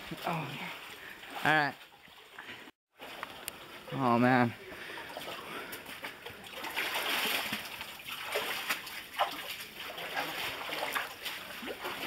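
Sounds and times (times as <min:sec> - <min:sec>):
footsteps splashing through water: 0:04.8 - 0:12.0.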